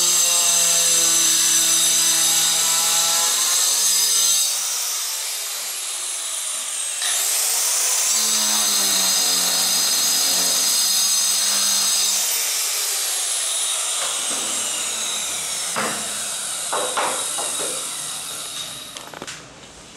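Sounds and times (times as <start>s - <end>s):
tile saw whining: 0.0s - 19.4s
knocks: 14.0s - 14.8s, 15.7s - 17.9s.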